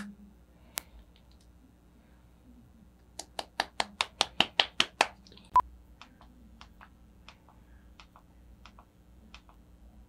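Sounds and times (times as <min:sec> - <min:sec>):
sharp clicks: 0:06.0 - 0:09.6.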